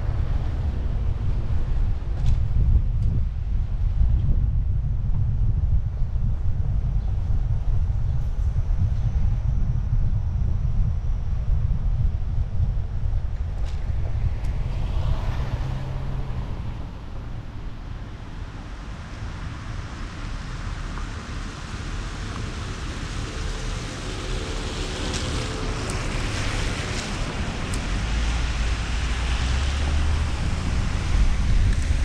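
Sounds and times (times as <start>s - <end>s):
wind rumbling on microphone: 0.0s - 32.0s
tyres hissing on wet pavement: 18.6s - 32.0s.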